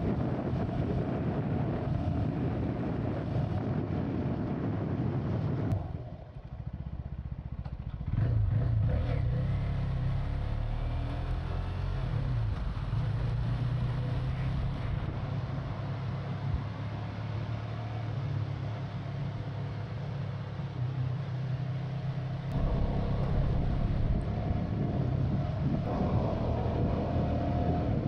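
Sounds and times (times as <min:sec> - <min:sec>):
wind noise: 0:00.0 - 0:06.2, 0:22.5 - 0:28.0
motorcycle engine running: 0:22.4 - 0:28.0.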